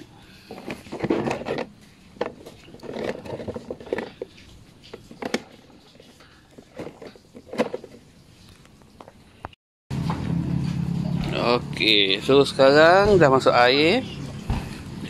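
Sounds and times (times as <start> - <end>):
plastic containers knocking: 0.5 - 8.0.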